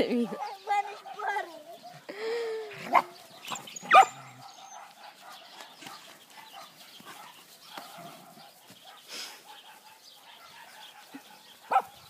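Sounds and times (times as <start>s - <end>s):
rough dog play noises: 0.0s - 2.1s, 2.7s - 12.0s
puppy yelping: 2.9s - 4.9s.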